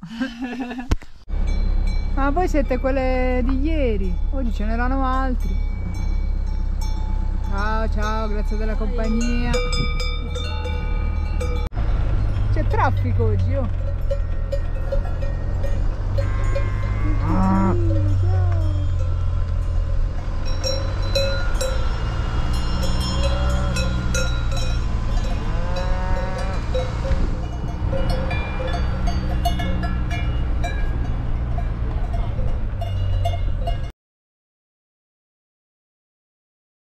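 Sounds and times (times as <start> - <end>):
low engine hum: 0.0 - 33.9
cowbells clanking: 1.4 - 33.9
cow mooing: 14.8 - 29.2.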